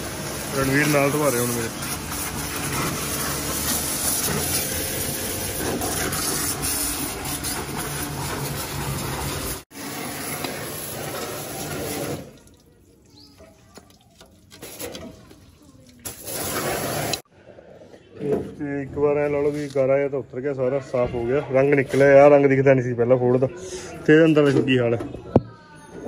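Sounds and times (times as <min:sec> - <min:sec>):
pressure washer spraying water: 0:00.0 - 0:12.6, 0:14.5 - 0:15.4, 0:16.0 - 0:17.2.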